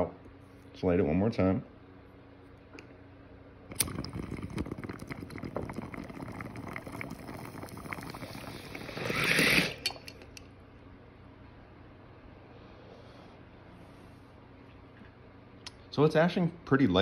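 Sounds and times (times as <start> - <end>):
water bubbling in bong: 3.7 - 10.4.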